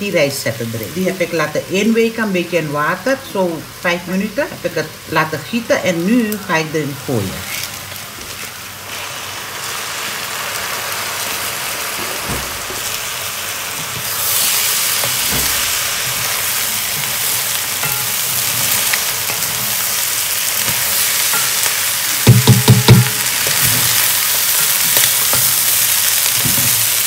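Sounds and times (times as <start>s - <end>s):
oil sizzling in a pot: 0.0s - 27.0s
spoon knocking on pot: 20.6s - 24.0s.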